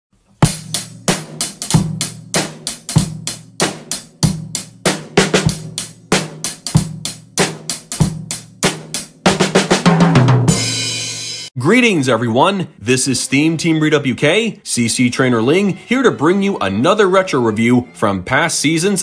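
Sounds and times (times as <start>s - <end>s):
drum kit beat: 0.3s - 11.6s.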